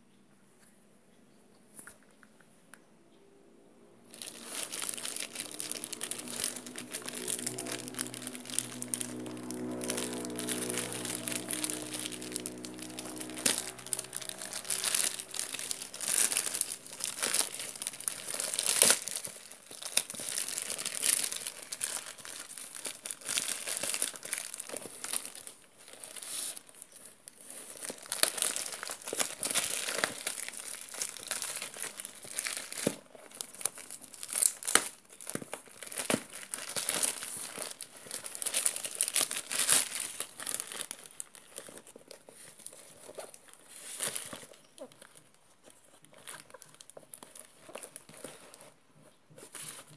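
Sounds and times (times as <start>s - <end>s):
plastic packaging crinkling: 4.1s - 49.9s.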